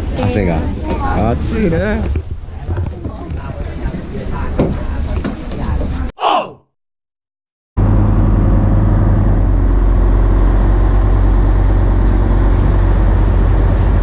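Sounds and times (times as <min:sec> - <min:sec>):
ferry engine low drone: 0:07.8 - 0:14.0.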